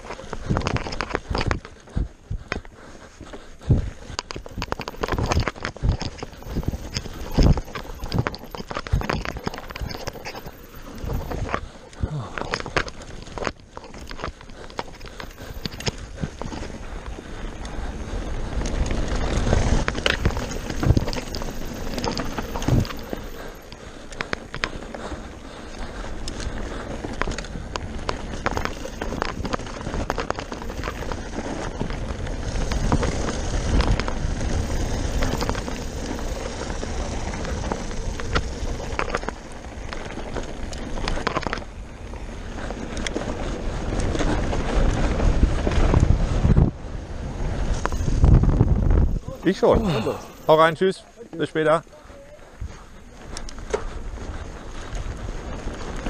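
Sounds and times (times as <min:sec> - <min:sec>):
tyre and wind rush: 0:00.0 - 0:50.9
bike clicks and rattles: 0:00.0 - 0:56.0.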